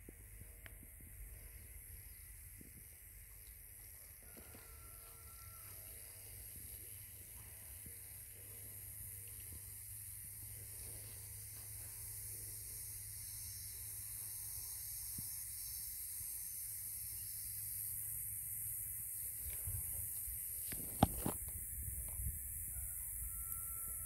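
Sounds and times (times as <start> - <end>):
outdoor ambience hiss: 0.0 - 24.0
wind rumbling on microphone: 20.7 - 24.0.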